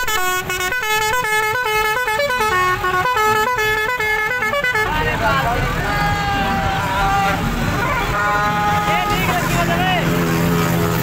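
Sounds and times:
musical vehicle horn tune: 0.0s - 5.3s.

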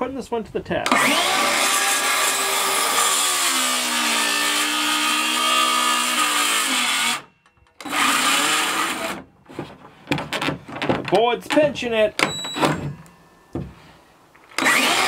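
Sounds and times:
circular saw cutting wood: 0.9s - 9.2s, 14.6s - 15.0s.

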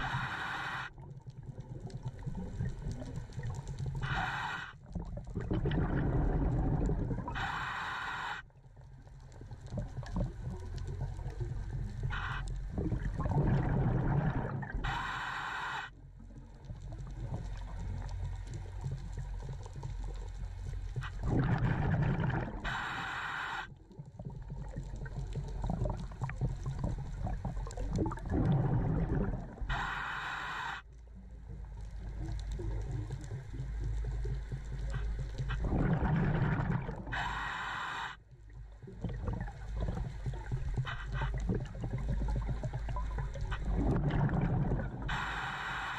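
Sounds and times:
regulator air hiss: 0.0s - 0.9s, 4.0s - 4.8s, 7.3s - 8.4s, 14.8s - 15.9s, 22.7s - 23.7s, 29.7s - 30.8s, 37.2s - 38.2s, 45.1s - 45.9s
exhaled air bubbling: 0.0s - 45.9s.

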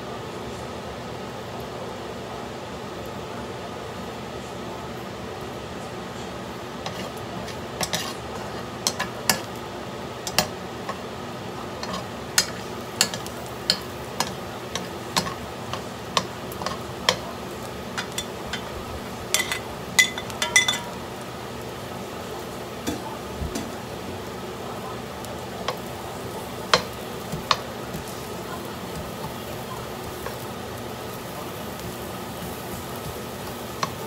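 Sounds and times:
frying sizzle: 0.0s - 34.0s
metal spoon scraping wok: 6.8s - 9.5s, 11.8s - 17.2s
plate clinking against pan: 19.3s - 21.0s.

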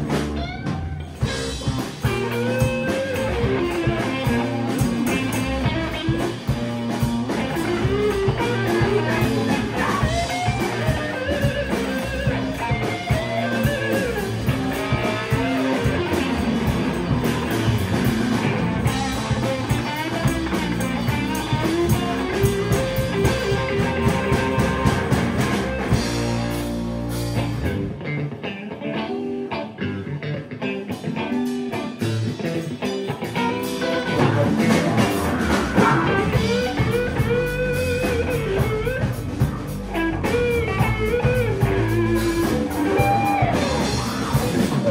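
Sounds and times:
drums: 0.0s - 44.9s
electric guitars: 0.0s - 44.9s.

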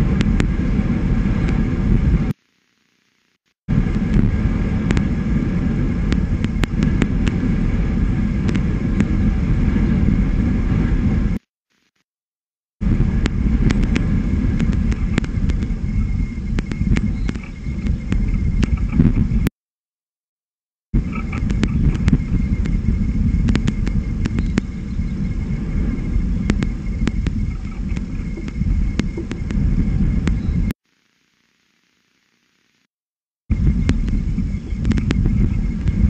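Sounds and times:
wind buffeting microphone: 0.0s - 2.3s, 3.7s - 11.4s, 12.8s - 19.5s, 21.0s - 30.7s, 33.5s - 36.0s.

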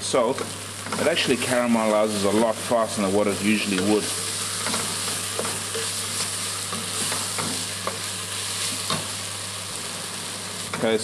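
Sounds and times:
onions sizzling in a pot: 0.0s - 11.0s
wooden spoon scraping a pot: 3.6s - 9.0s.

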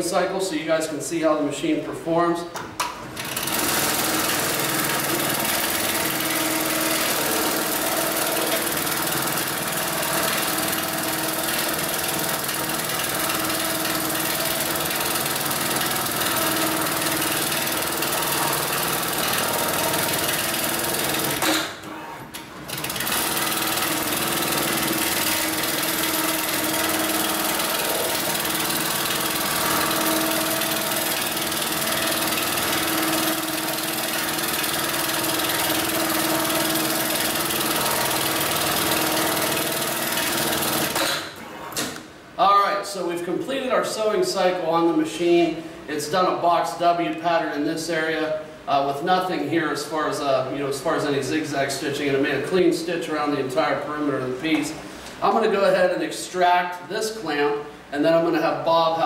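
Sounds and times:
sewing machine clatter: 3.2s - 21.7s, 22.4s - 41.3s.

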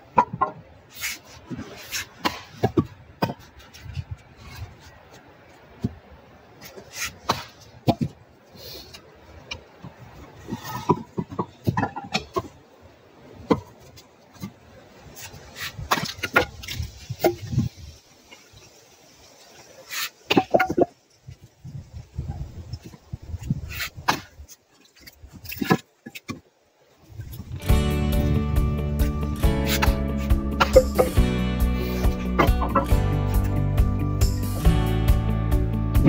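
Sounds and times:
axe splitting firewood: 25.0s - 26.4s, 29.4s - 31.3s.

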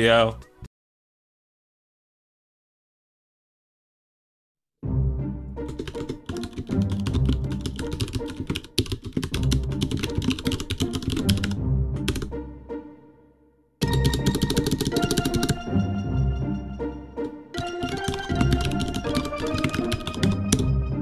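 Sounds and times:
background music: 0.0s - 0.7s, 4.8s - 21.0s
keyboard typing: 5.6s - 12.3s, 13.8s - 15.7s, 17.5s - 20.8s.

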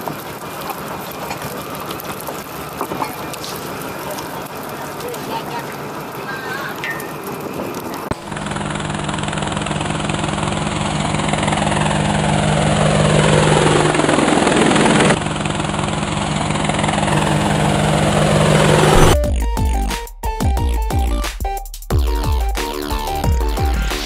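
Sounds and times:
drone rotors humming: 16.7s - 19.8s
whoosh falling in pitch: 17.1s - 19.3s.

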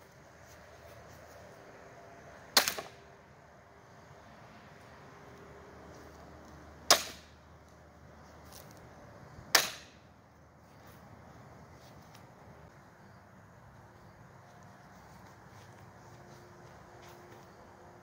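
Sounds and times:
blade chopping bamboo: 2.6s - 3.0s, 6.8s - 7.3s, 9.5s - 10.0s.

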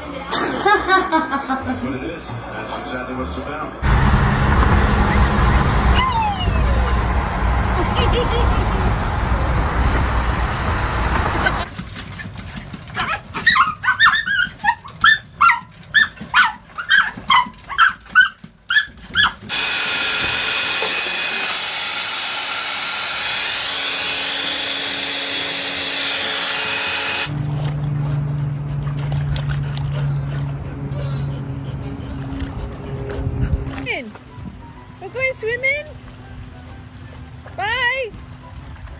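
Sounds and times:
dog barking: 13.0s - 19.4s.

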